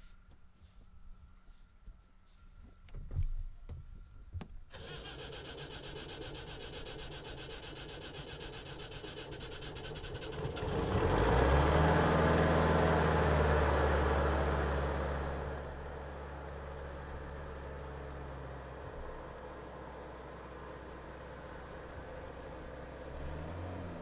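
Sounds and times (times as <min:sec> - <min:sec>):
engine running and revving: 0:08.1 - 0:15.9, 0:21.8 - 0:24.0.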